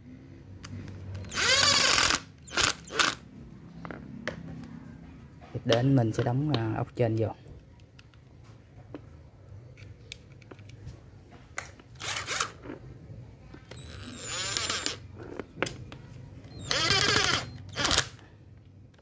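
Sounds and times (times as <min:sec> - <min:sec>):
electric screwdriver whirring: 0:01.2 - 0:03.2, 0:12.0 - 0:12.6, 0:13.7 - 0:15.0, 0:16.5 - 0:18.2.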